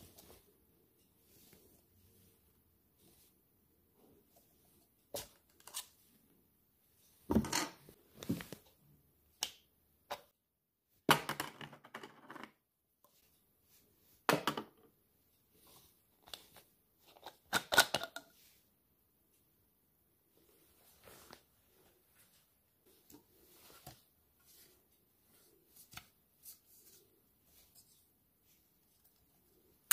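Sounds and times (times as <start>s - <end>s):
plastic parts clicking and knocking: 17.1s - 18.3s.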